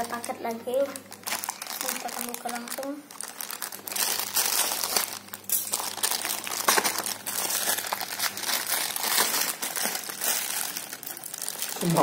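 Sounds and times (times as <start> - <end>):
plastic bag crinkling: 0.0 - 12.0
scissors cutting plastic: 4.0 - 12.0.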